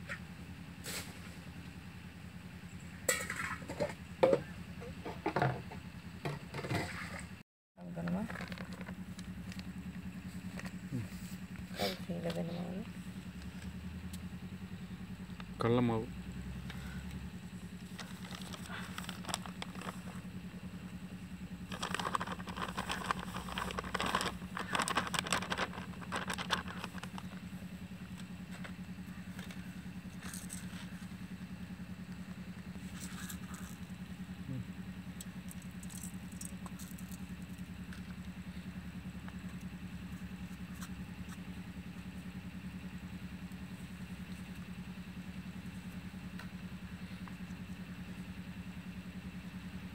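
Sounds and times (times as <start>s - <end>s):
plastic packet rustling: 17.9s - 20.2s, 21.7s - 27.3s.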